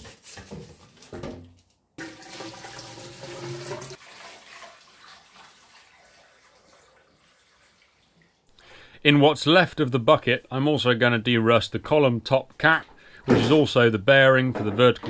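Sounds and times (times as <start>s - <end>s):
liquid sloshing and pouring: 2.0s - 8.6s.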